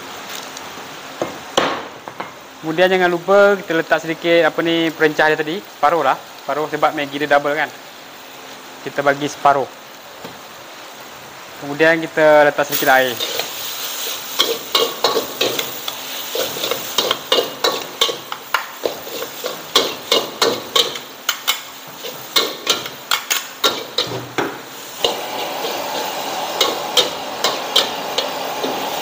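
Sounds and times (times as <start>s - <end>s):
sizzling in hot pan: 0.0s - 29.0s
metal utensils clacking on wok: 14.3s - 24.2s, 26.6s - 28.8s.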